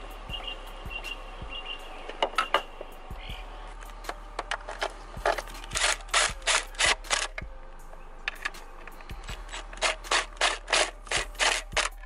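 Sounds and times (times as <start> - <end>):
sharp clicks: 3.8 - 7.5.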